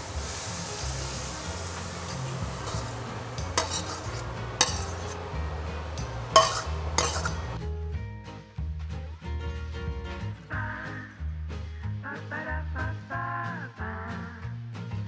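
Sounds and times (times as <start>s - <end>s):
light sizzle: 0.0s - 7.6s
background music: 1.0s - 15.0s
metal spatula scraping a wok: 1.2s - 7.6s.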